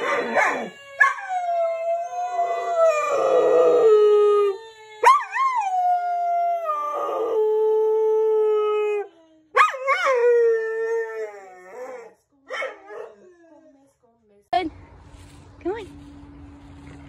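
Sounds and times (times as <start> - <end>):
dog howling: 0.0 - 13.6.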